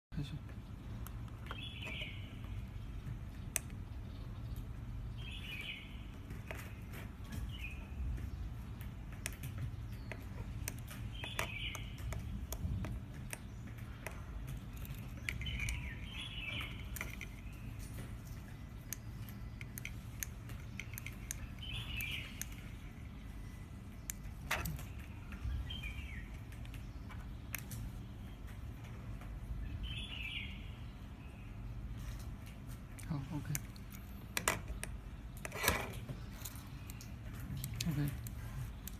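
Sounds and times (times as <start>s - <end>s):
steady low hum: 0.1s - 38.9s
bird chirping: 0.2s - 38.9s.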